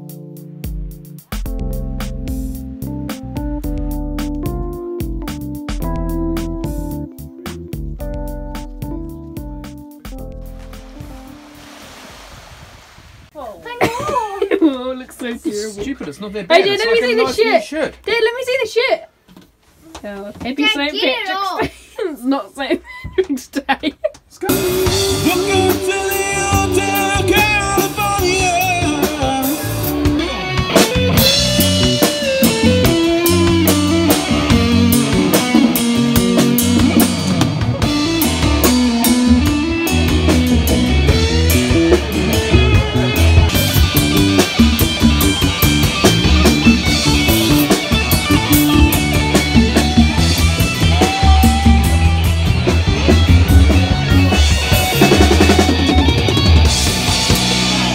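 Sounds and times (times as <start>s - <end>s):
bass guitar: 0.0s - 11.4s, 24.4s - 57.9s
electric guitar: 0.0s - 11.4s, 24.4s - 57.9s
drum kit: 0.0s - 11.8s, 24.2s - 57.9s
person singing: 24.5s - 30.6s, 48.4s - 52.4s.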